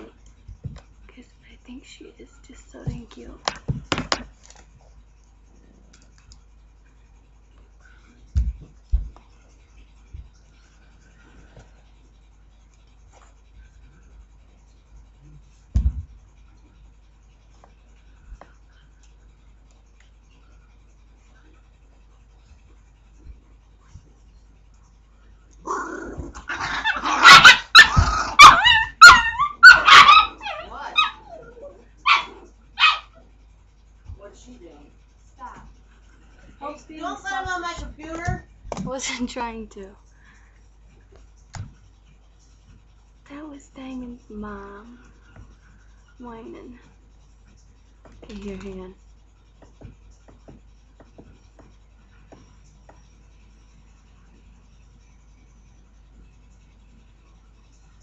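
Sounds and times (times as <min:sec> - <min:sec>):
dull thumps: 0:00.5 - 0:00.9, 0:02.8 - 0:04.4, 0:08.3 - 0:09.3, 0:15.7 - 0:16.2
dog whining and yelping: 0:25.7 - 0:33.2.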